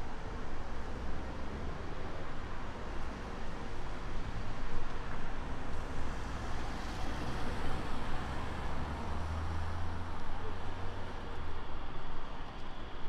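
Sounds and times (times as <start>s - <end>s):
passing cars: 5.4s - 12.9s.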